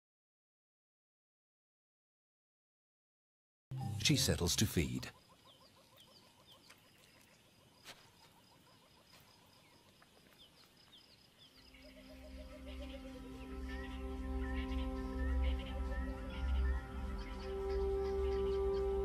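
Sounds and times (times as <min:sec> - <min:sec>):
soundtrack music: 0:03.7 - 0:05.0, 0:12.0 - 0:19.0
bird calls: 0:04.1 - 0:19.0.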